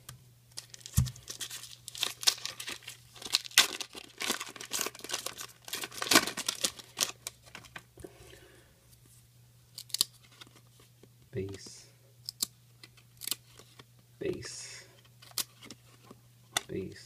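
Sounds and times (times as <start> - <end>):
foil wrapper tearing and crinkling: 0.6 - 7.8.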